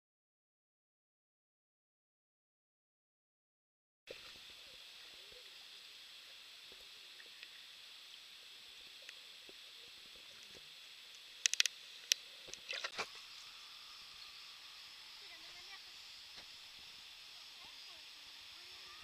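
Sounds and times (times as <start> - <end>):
underwater hiss: 4.1 - 19.0
sharp clicks and knocks: 11.4 - 13.0.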